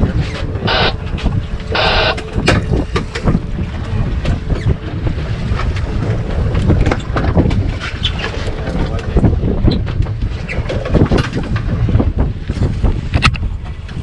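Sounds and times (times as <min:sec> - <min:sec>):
low rumble: 0:00.0 - 0:14.0
wind buffeting microphone: 0:00.0 - 0:14.0
rasping buzz: 0:00.5 - 0:02.7.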